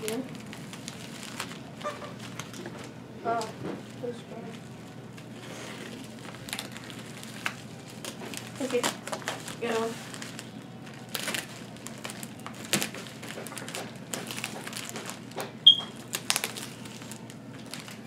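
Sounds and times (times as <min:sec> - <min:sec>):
plastic crinkling: 0:00.0 - 0:18.0
knife cutting plastic wrapping: 0:05.2 - 0:18.0.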